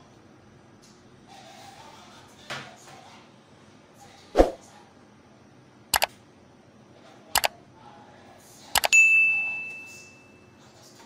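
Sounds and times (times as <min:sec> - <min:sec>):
bell-like notification ding: 0:08.8 - 0:10.4.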